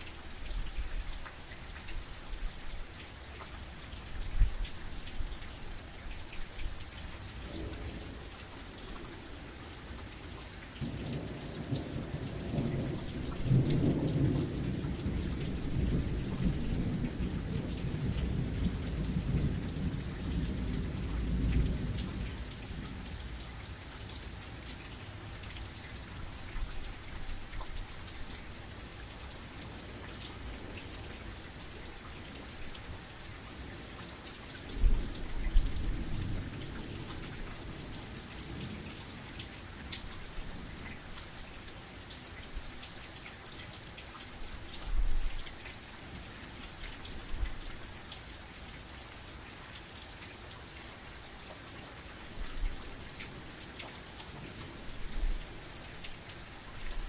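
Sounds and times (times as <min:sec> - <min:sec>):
heavy rain: 0:00.0 - 0:57.0
rolling thunder: 0:10.8 - 0:23.0.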